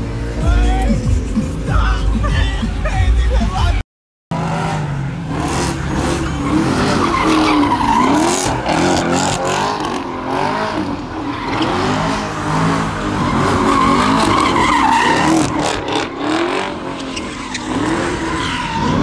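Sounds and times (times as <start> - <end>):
car engine at high revs: 4.3 - 19.0
tyres screeching on pavement: 4.7 - 19.0.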